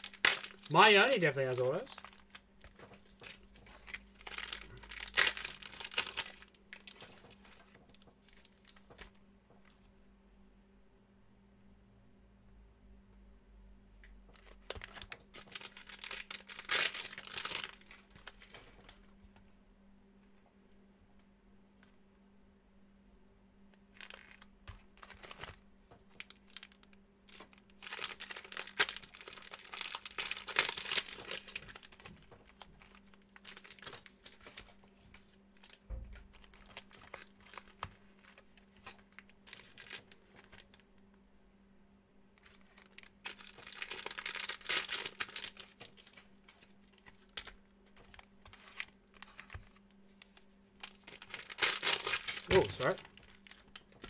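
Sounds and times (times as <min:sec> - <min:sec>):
foil wrappers crinkling and tearing: 0:00.0 - 0:09.1, 0:14.4 - 0:19.0, 0:23.9 - 0:40.8, 0:42.4 - 0:54.0
cards being handled: 0:42.5 - 0:53.6.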